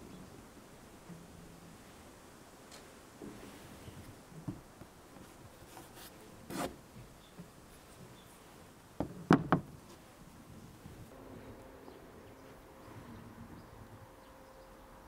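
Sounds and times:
sharp knocks on wood: 0:09.0 - 0:09.7.

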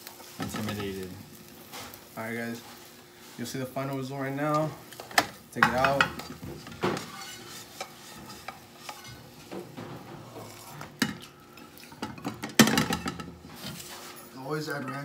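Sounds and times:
omelets sizzling in frying pans: 0:00.0 - 0:15.0
clatter of pans: 0:00.3 - 0:01.0, 0:04.9 - 0:14.2
metal spatulas scraping: 0:04.9 - 0:15.0
pans knocking against stove: 0:05.1 - 0:11.4, 0:12.0 - 0:13.7.

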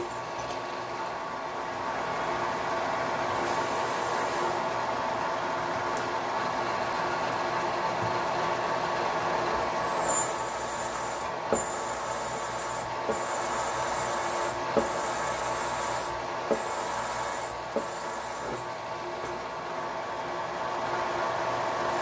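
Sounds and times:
milling machine spindle running: 0:06.4 - 0:22.0
drill bit cutting aluminum: 0:09.8 - 0:18.7.

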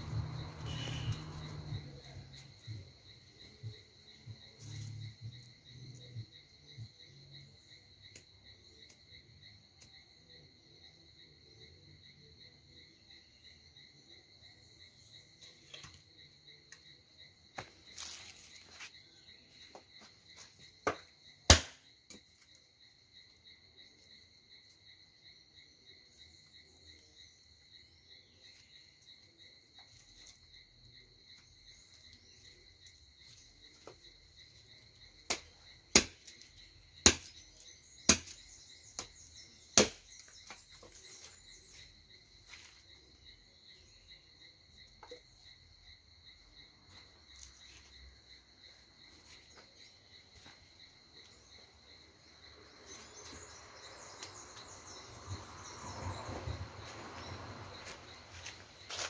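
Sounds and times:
wood being chopped: 0:20.8 - 0:22.2, 0:35.2 - 0:37.4, 0:38.0 - 0:40.9.

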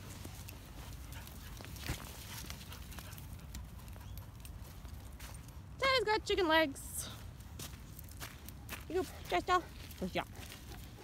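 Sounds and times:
footsteps crunching on gravel: 0:07.1 - 0:11.0.

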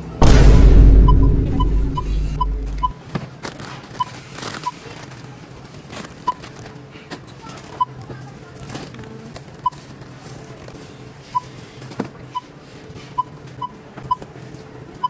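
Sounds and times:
barcode scanner beeping: 0:01.1 - 0:03.0
packages knocking and rustling: 0:03.0 - 0:10.8.

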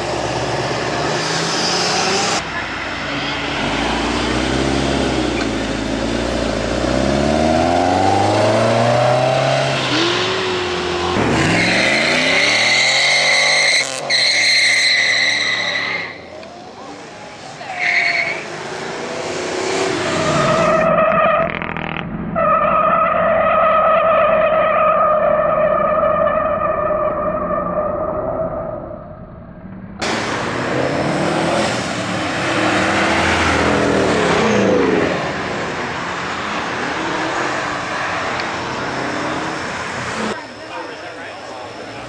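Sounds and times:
sports car engines revving: 0:00.0 - 0:22.4, 0:30.0 - 0:42.0
tyres squealing: 0:17.5 - 0:18.5.

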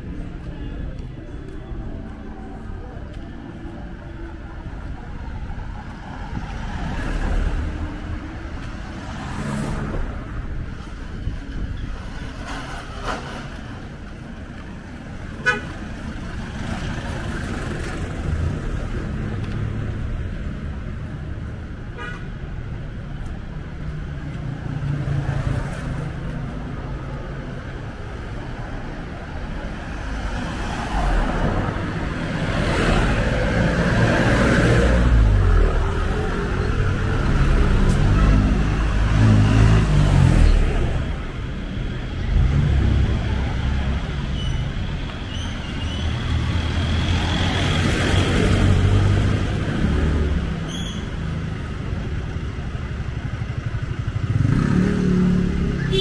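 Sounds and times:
street traffic engines: 0:00.0 - 0:56.0
vehicle horn toot: 0:15.4 - 0:15.7.

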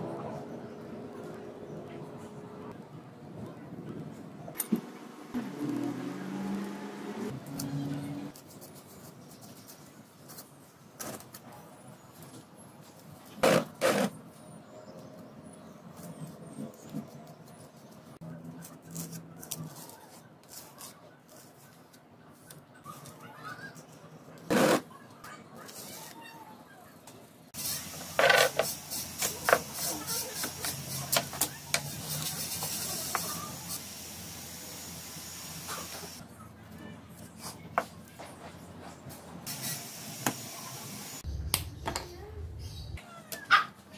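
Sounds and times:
steady hiss: 0:39.5 - 0:41.2.

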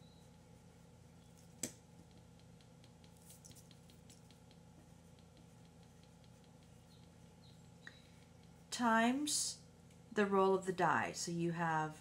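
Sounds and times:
pen scratching on paper: 0:03.1 - 0:07.2.

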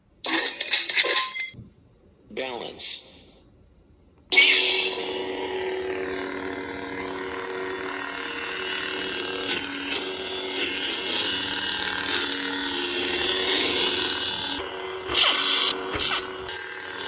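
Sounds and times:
electric lightsaber hum: 0:04.2 - 0:17.0.

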